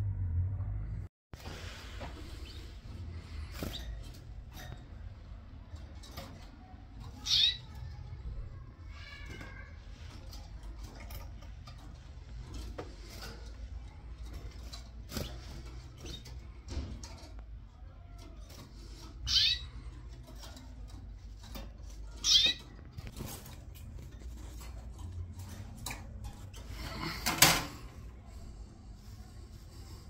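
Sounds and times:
canary chirping: 6.6 - 8.3, 18.8 - 25.8.

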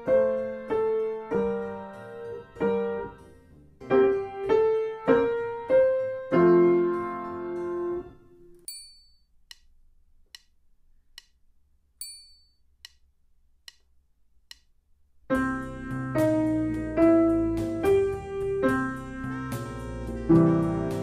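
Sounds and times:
slow blues piano: 0.0 - 8.5, 15.3 - 21.0
metronome ticking: 12.0 - 14.7.

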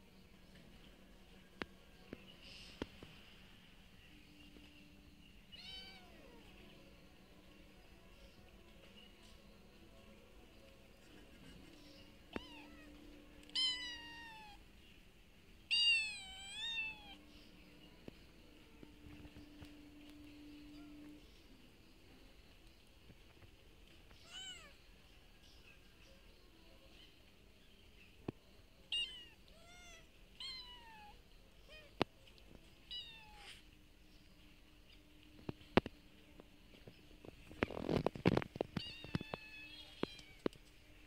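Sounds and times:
cat meowing: 12.3 - 14.6, 15.7 - 17.2, 24.2 - 24.8, 28.9 - 31.9, 32.9 - 33.6.

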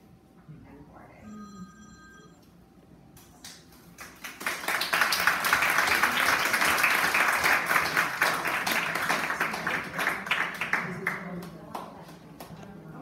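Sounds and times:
audience applauding: 4.0 - 11.6.

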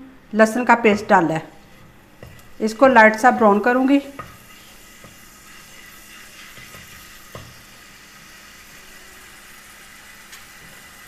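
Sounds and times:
garlic sizzling in oil: 0.6 - 11.0
wooden spatula knocking pan: 3.1 - 4.4, 6.6 - 7.6.

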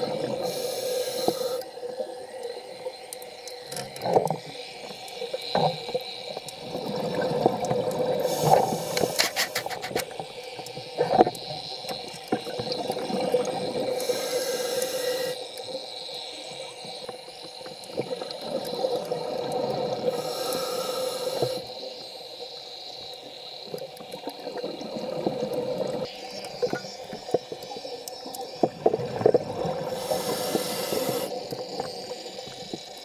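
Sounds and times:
bubbles crackling and gurgling: 0.0 - 15.8, 16.4 - 22.2, 23.2 - 33.0
regulator hissing inhale: 0.4 - 1.8, 8.1 - 11.8, 13.9 - 15.4, 19.9 - 23.7, 29.8 - 32.9.

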